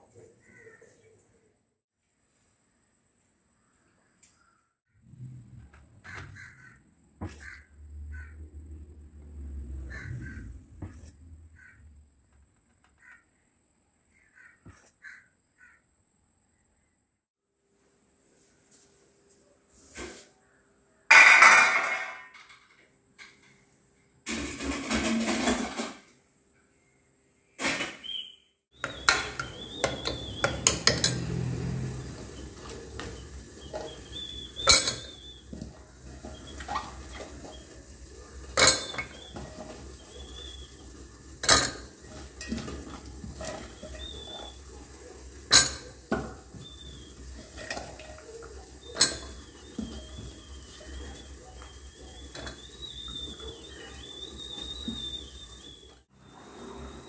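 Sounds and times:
metal pots and ladle clattering: 21.1 - 23.6, 24.3 - 26.0, 28.8 - 55.7.

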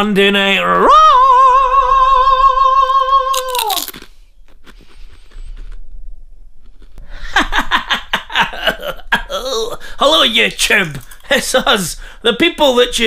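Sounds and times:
person singing a wavering note: 0.7 - 3.5
loud crunch of crisp bitten: 3.3 - 5.8
crunching of chewing: 3.3 - 5.9
person speaking: 8.4 - 13.0.

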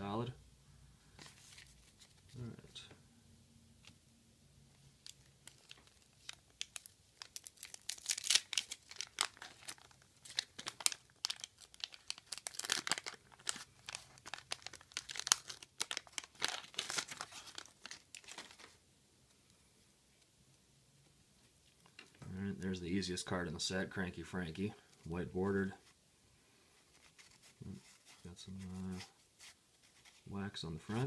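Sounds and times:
wax paper crinkling and tearing: 5.0 - 18.8, 26.8 - 30.3.

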